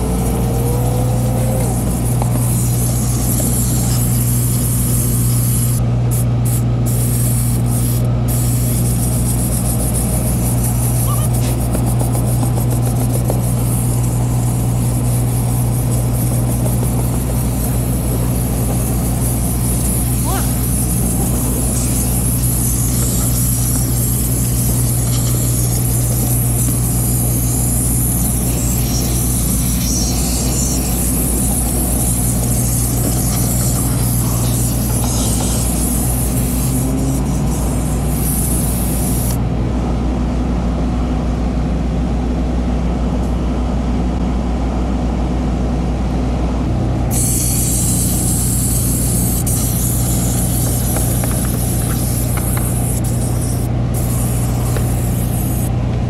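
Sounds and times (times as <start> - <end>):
steam cleaner hissing: 0.0 - 39.4, 47.1 - 55.7
low hum: 0.0 - 41.6.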